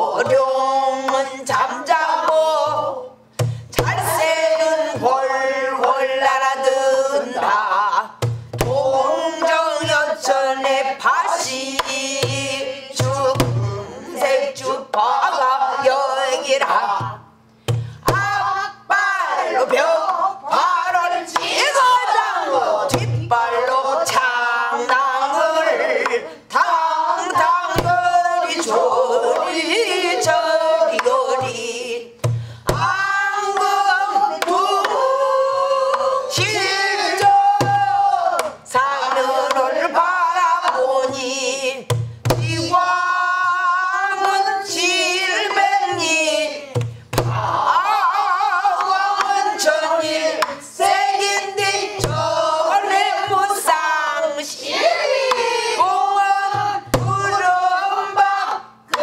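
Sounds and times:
woman singing: 0:00.0 - 0:17.3, 0:18.0 - 0:59.0
barrel drum thumps and clicks: 0:08.2 - 0:08.8, 0:17.6 - 0:18.4, 0:22.9 - 0:23.4, 0:27.3 - 0:28.7, 0:32.2 - 0:33.8, 0:41.9 - 0:42.8, 0:46.8 - 0:47.4, 0:51.2 - 0:52.3.

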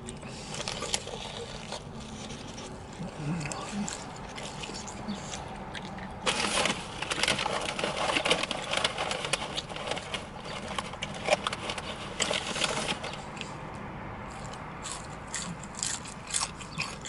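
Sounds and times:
food wrapping crinkling: 0:00.0 - 0:13.4.

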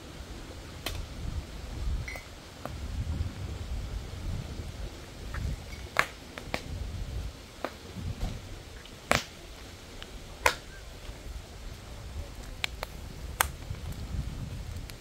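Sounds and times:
low rumble: 0:00.0 - 0:05.9
wood fire crackling: 0:00.0 - 0:15.0.

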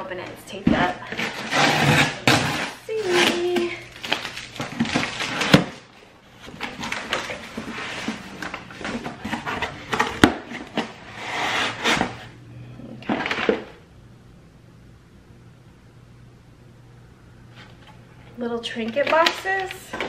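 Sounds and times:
packing paper rustling: 0:01.1 - 0:11.0.

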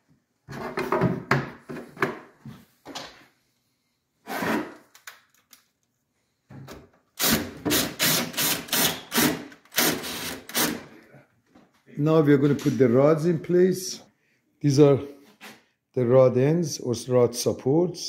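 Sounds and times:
cordless drill driving screw: 0:07.2 - 0:10.8.

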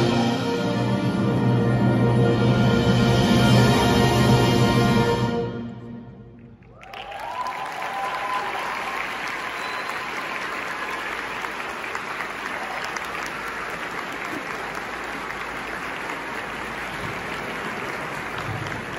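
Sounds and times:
audience applauding: 0:06.6 - 0:18.9.

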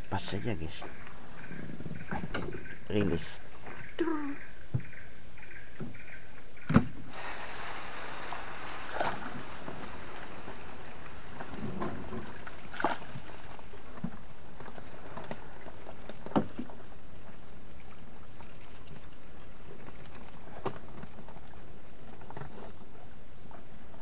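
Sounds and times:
steady hiss: 0:04.6 - 0:24.0
water splashes: 0:07.0 - 0:24.0.

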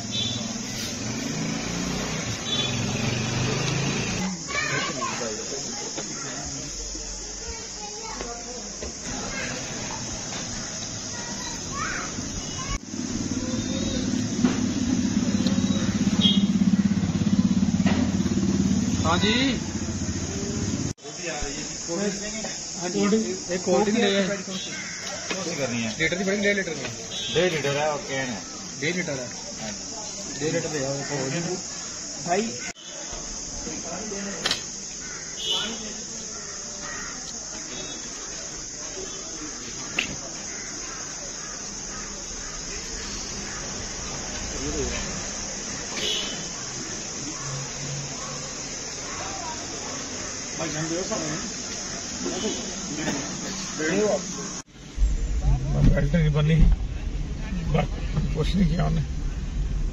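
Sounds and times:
insects droning: 0:00.0 - 0:59.9
sharp click: 0:34.4 - 0:34.7.

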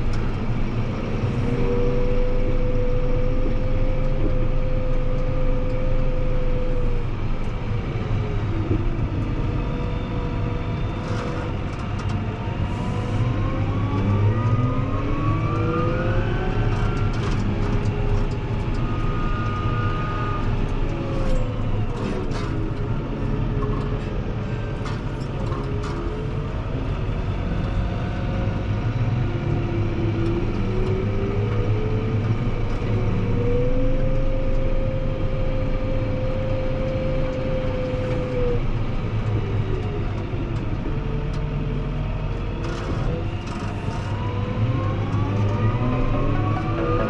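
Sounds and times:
whining tones gliding in pitch: 0:12.3 - 0:24.0, 0:29.5 - 0:47.0.

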